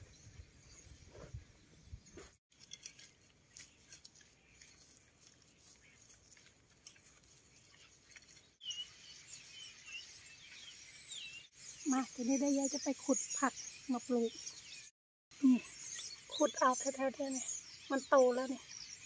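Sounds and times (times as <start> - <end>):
small bird chirping: 0.0 - 19.0
rake scratching through soil: 2.2 - 11.1.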